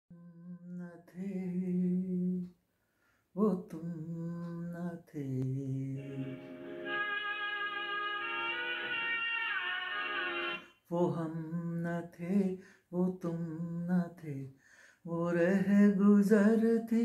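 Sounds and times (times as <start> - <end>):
sustained instrumental backing: 6.0 - 10.6.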